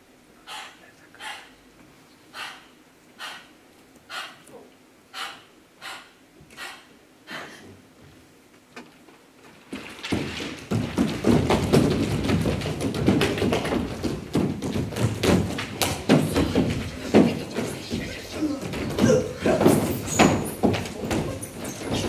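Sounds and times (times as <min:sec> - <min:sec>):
feet stamping on stage floor: 0:09.4 - 0:22.0.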